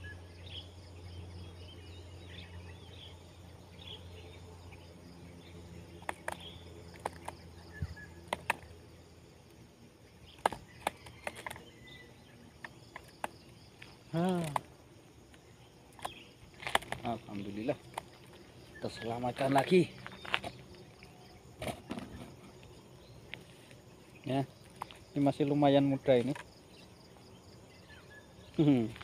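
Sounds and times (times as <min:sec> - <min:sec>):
birds chirping: 0:00.0 - 0:29.0
insects chirping: 0:00.0 - 0:29.0
sharp clicks and taps: 0:08.3 - 0:08.7.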